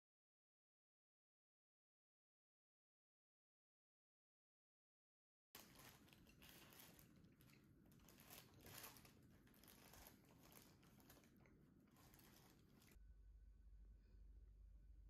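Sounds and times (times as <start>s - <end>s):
crusty bread roll crackling: 5.6s - 13.0s
faint low hum: 5.6s - 15.0s.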